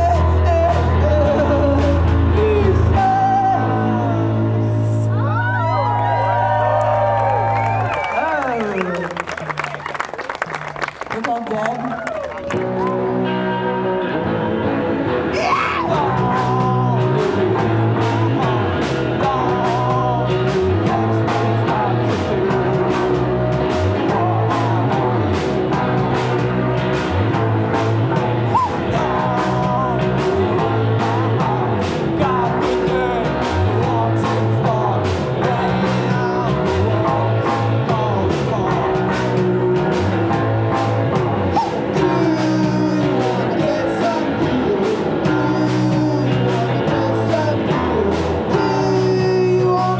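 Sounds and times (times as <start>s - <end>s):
person singing: 0.0s - 5.6s, 15.2s - 49.9s
electric bass: 0.0s - 49.9s
electric guitar: 0.0s - 49.9s
drum beat: 16.0s - 49.9s.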